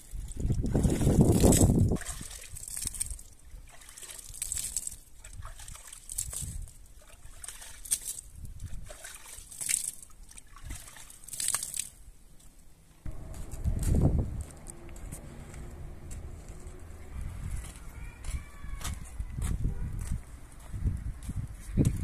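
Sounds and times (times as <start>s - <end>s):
small splashes and drips: 0.0s - 12.1s
water splashing onto ground: 0.0s - 12.1s.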